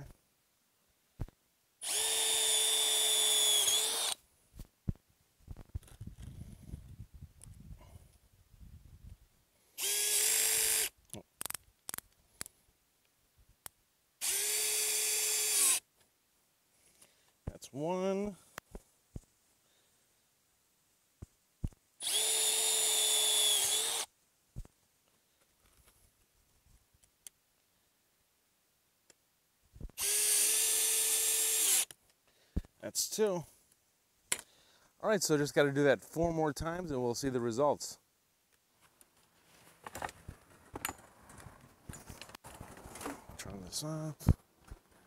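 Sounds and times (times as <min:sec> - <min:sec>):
cordless drill running: 0:01.8 - 0:04.2, 0:09.8 - 0:10.9, 0:14.2 - 0:15.8, 0:22.0 - 0:24.1, 0:30.0 - 0:31.9.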